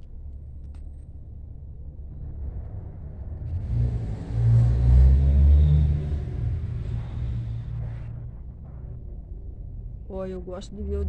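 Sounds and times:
vehicle engine rumble: 0:00.0 - 0:11.0.

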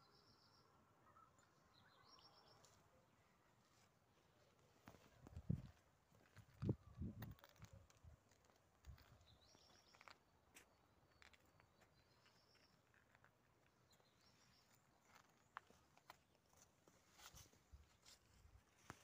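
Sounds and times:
faint high bird calls: 0:00.0 - 0:03.5.

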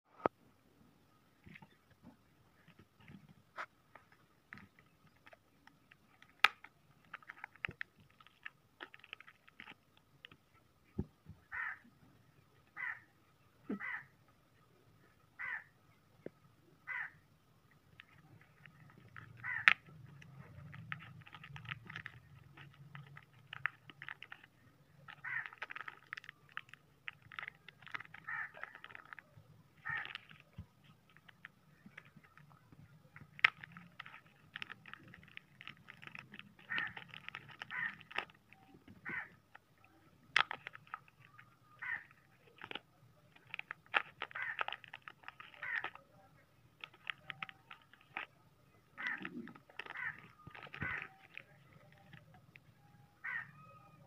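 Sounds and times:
plastic bags crinkling: 0:18.0 - 0:39.4, 0:40.2 - 0:46.0, 0:46.6 - 0:52.8
bird calling: 0:18.9 - 0:19.8, 0:35.9 - 0:40.1, 0:46.8 - 0:54.0.

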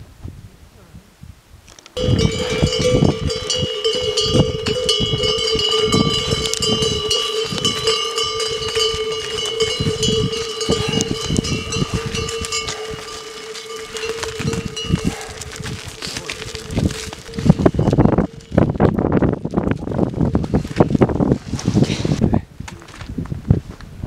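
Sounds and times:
yak bells clanking: 0:02.0 - 0:19.4.

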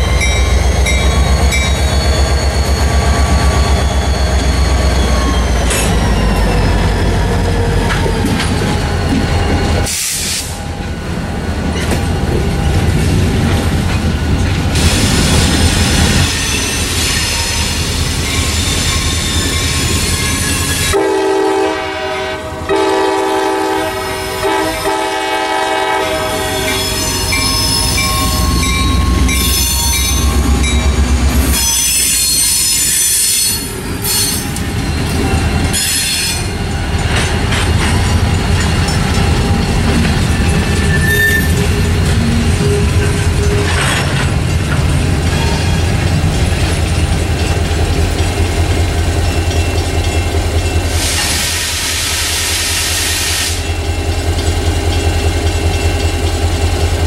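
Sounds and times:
diesel locomotive engine running: 0:00.0 - 0:57.0
train air horn: 0:20.9 - 0:27.3
wheel flanges squealing: 0:26.4 - 0:44.5.

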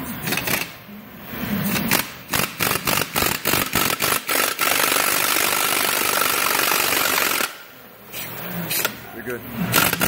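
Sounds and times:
impact wrench bursts and whine: 0:01.8 - 0:07.7.

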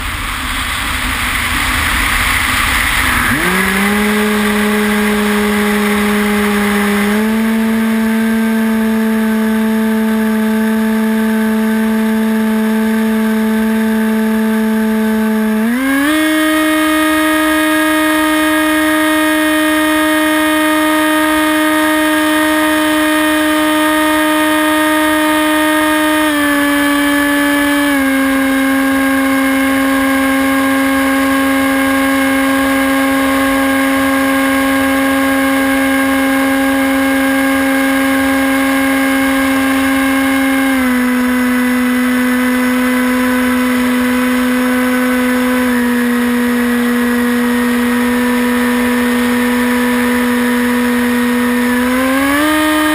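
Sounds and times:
air rushing past: 0:00.0 - 0:06.8
electric motor and propeller whining: 0:00.0 - 0:52.9.

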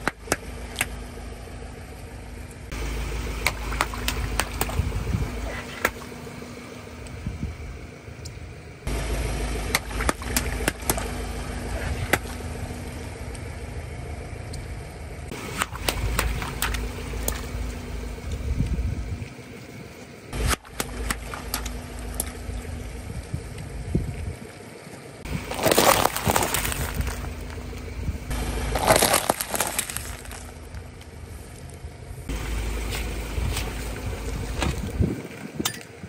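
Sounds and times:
low engine rumble: 0:00.0 - 0:36.0
tyre crunching water beads: 0:25.3 - 0:31.1.

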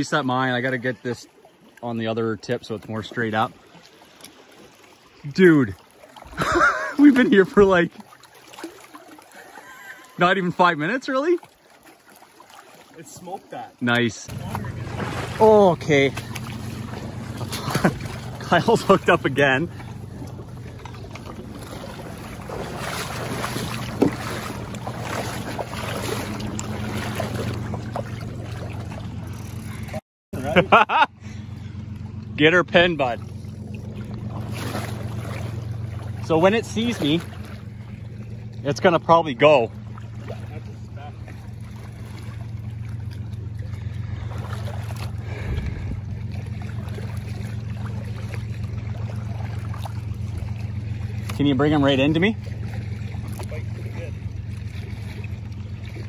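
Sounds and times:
low steady hum: 0:00.0 - 0:11.0, 0:12.6 - 0:56.0
waves lapping on rocks: 0:00.0 - 0:30.0, 0:34.0 - 0:56.0
steady low rumble: 0:14.0 - 0:56.0.

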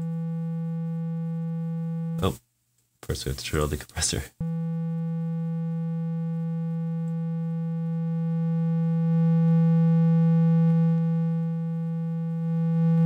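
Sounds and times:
low buzzy synthesizer note: 0:00.0 - 0:02.4, 0:04.4 - 0:13.0.

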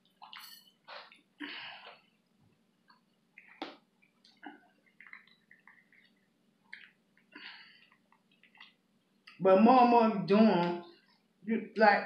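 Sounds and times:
chewing: 0:00.0 - 0:09.4.

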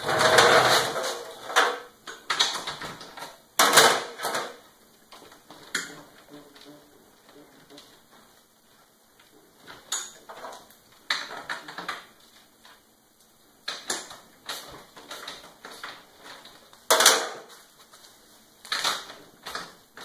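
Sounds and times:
metal parts clicking and clattering: 0:18.6 - 0:20.0.

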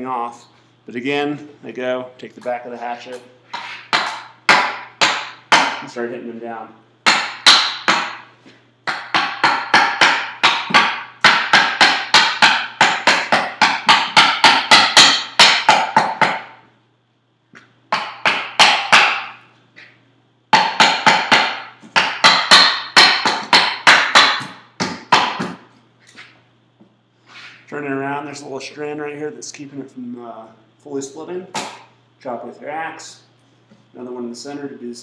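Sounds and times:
hatchet hammering wooden wedges: 0:03.5 - 0:05.9, 0:07.0 - 0:16.6, 0:17.9 - 0:19.4, 0:20.5 - 0:25.6.

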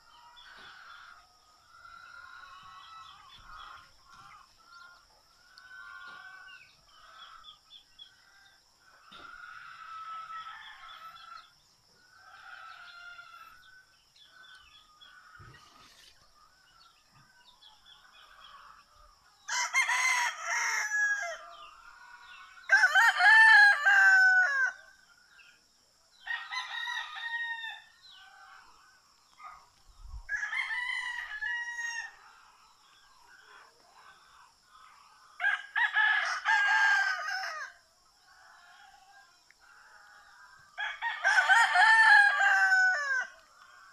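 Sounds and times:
rooster crowing: 0:09.1 - 0:11.5, 0:19.5 - 0:24.8, 0:26.2 - 0:28.7, 0:30.3 - 0:32.3, 0:35.4 - 0:43.9.

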